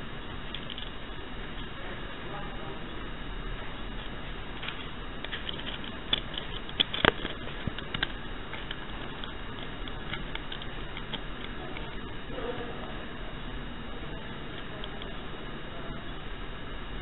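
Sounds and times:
room hiss: 0:00.0 - 0:17.0.

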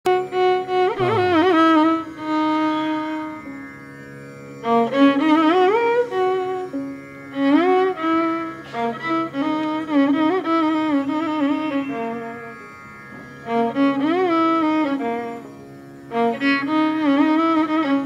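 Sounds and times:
bowed string melody: 0:00.1 - 0:18.0
steady drone: 0:00.7 - 0:03.4.

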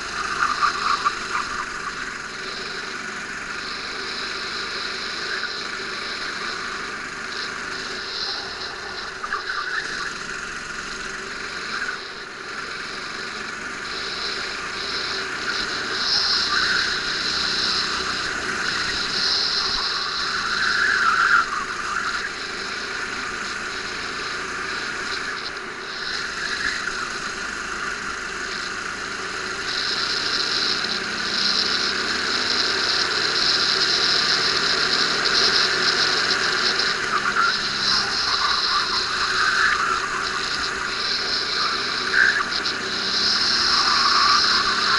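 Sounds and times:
go-kart engine whining: 0:00.0 - 0:44.9.

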